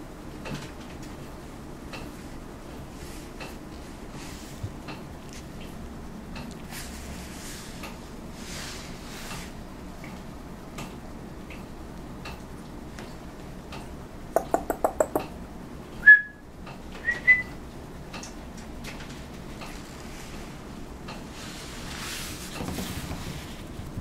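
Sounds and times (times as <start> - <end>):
person making kissing clicks: 14.4 - 15.3
short high whistles: 16.0 - 16.4, 17.0 - 17.5.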